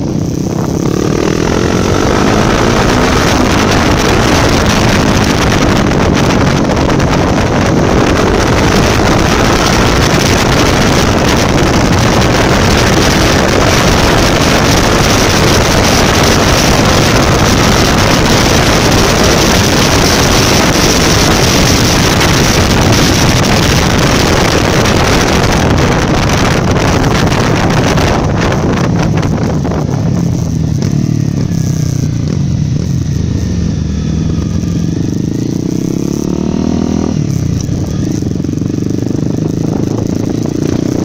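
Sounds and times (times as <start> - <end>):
motorcycle engine running: 0.0 - 41.0
wind on microphone: 0.0 - 41.0.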